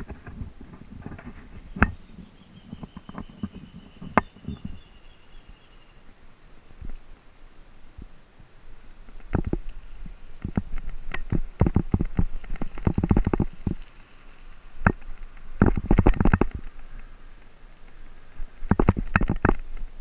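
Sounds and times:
bicycle rattling over bumpy track: 0:09.1 - 0:20.0.

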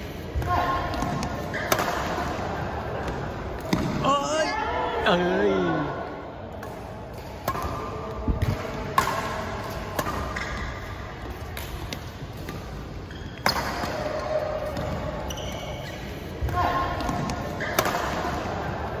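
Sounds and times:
rackets striking shuttlecock: 0:00.4 - 0:02.4, 0:06.6 - 0:15.5, 0:16.4 - 0:18.7.

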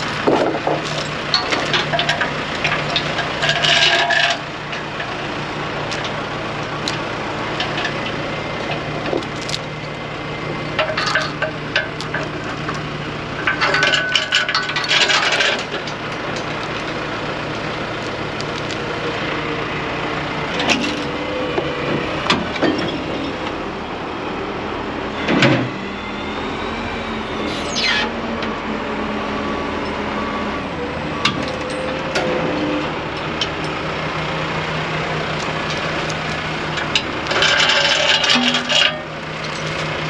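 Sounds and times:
chains clanking: 0:00.0 - 0:04.4, 0:05.8 - 0:07.0, 0:08.6 - 0:09.9, 0:10.8 - 0:12.8, 0:13.5 - 0:15.8, 0:31.4 - 0:32.9, 0:35.4 - 0:40.0
diesel engine running: 0:00.0 - 0:40.0.

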